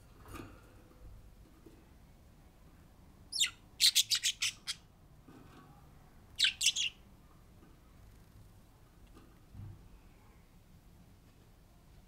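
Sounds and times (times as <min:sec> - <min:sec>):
budgerigar chirping: 0:03.3 - 0:04.8, 0:06.4 - 0:07.0.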